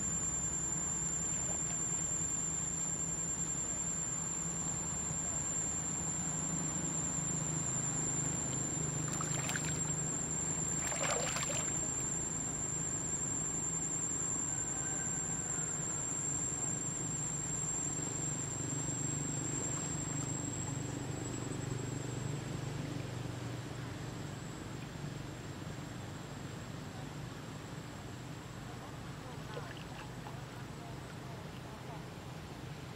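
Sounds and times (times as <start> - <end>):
steady low hum: 0.0 - 32.9
thin high whine: 0.0 - 32.9
water splashing and lapping: 9.0 - 10.0, 10.7 - 12.0.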